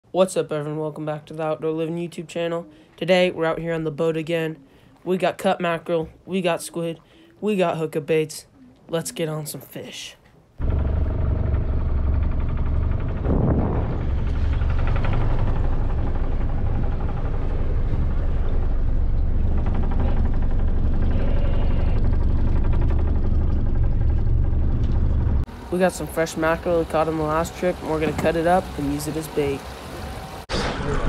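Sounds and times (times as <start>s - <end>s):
boat engine droning: 10.6s - 30.5s.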